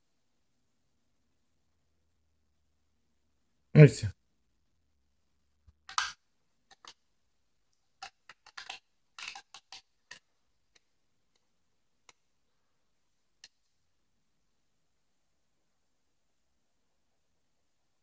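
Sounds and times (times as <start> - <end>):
colour sticks clicking on plastic tray: 5.7 - 7.1, 7.7 - 12.3.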